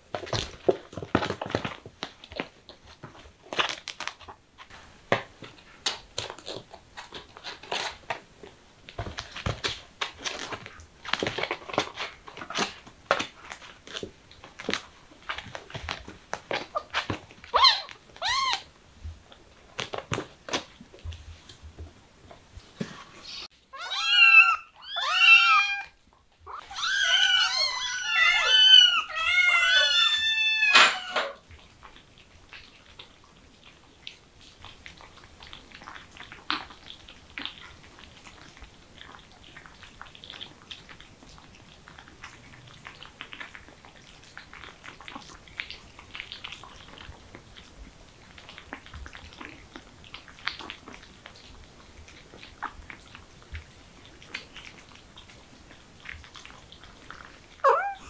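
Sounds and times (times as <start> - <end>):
kittens lapping from bowls: 5.3 - 22.4, 31.4 - 58.0
kittens meowing: 17.5 - 18.7, 23.7 - 31.4, 57.6 - 58.0.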